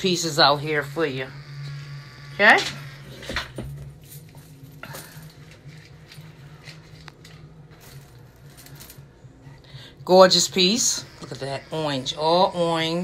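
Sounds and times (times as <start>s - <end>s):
steady low hum: 0.0s - 13.0s
jewelry clicking and rustling: 3.6s - 9.4s.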